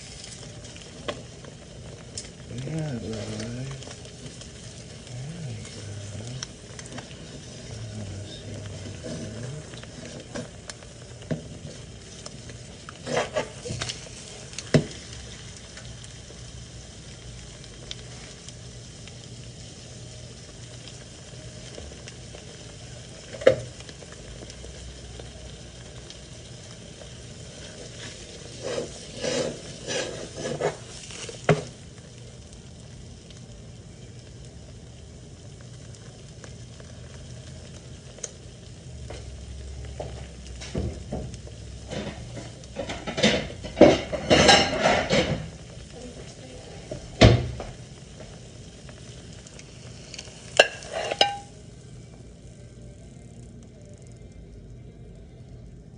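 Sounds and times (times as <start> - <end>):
eggs sizzling in a frying pan: 0.0 - 55.9
frying pan knocking and clattering: 50.6 - 51.5.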